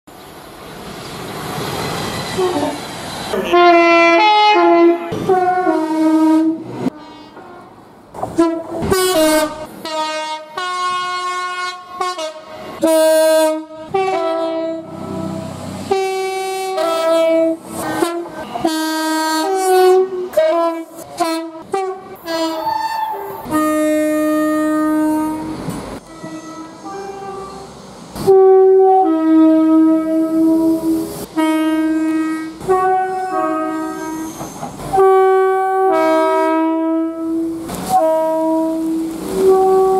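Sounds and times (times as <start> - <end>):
train rushing: 0.1 - 39.9
two-note train horn blasts: 3.5 - 7.7, 8.4 - 34.3, 34.9 - 39.9.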